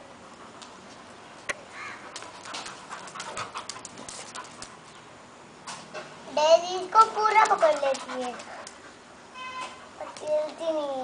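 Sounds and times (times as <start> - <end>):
faint dog panting: 0.0 - 1.0, 2.0 - 4.9, 7.3 - 9.1, 9.8 - 10.6
dog sounds: 7.0 - 9.0, 9.6 - 10.8.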